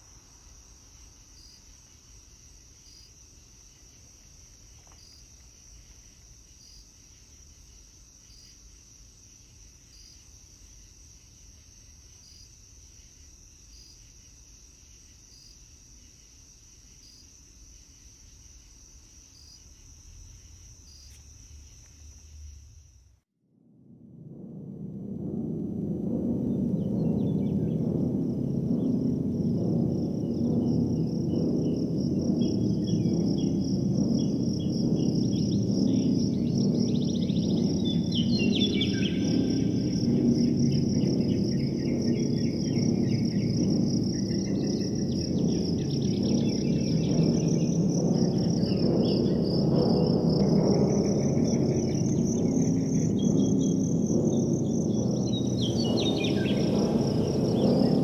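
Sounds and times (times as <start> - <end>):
high cricket trill: 0.0 - 23.2, 24.3 - 58.0
dense low drone: 23.6 - 58.0.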